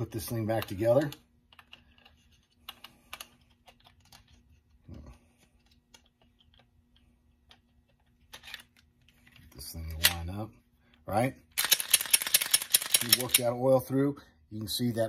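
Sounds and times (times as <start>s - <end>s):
pistol parts clicking: 11.5s - 13.6s.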